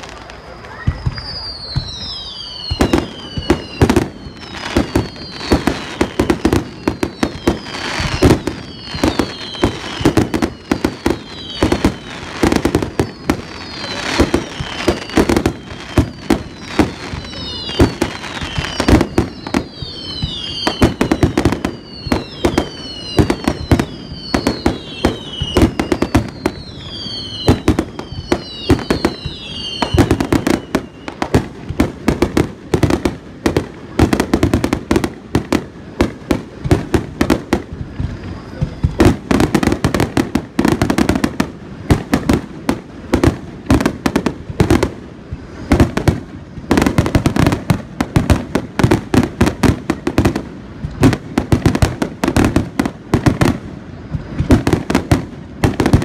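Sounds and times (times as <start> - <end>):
falling whistles: 0.0 - 31.5, 37.3 - 42.0
firework crackling: 0.0 - 56.0.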